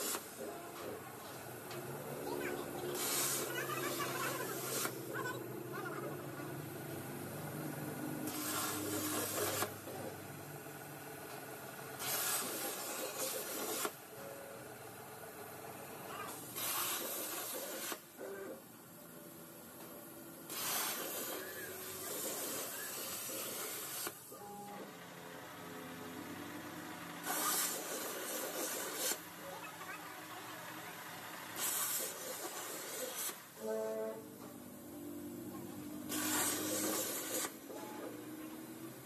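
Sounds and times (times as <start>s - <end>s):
plasma torch hissing through steel: 0.0s - 0.4s, 2.8s - 5.1s, 8.2s - 9.8s, 12.0s - 14.0s, 16.3s - 18.0s, 20.5s - 24.3s, 27.2s - 29.3s, 31.5s - 33.6s, 36.0s - 37.7s.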